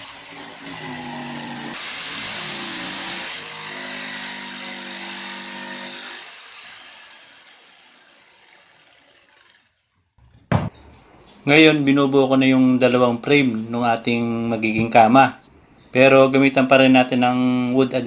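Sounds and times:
electric jigsaw cutting plywood: 0.0s - 9.9s.

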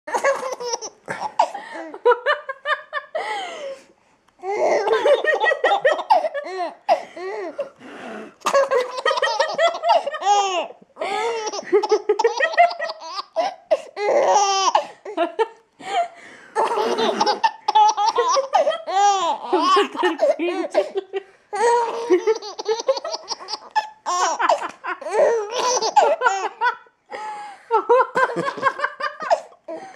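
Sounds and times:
baby laughing: 0.1s - 2.0s, 4.4s - 7.7s, 8.4s - 15.1s, 16.6s - 26.8s, 28.2s - 29.6s.

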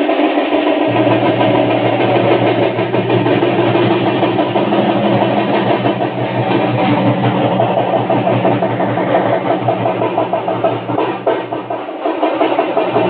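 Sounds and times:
loud droning music: 0.8s - 13.0s.

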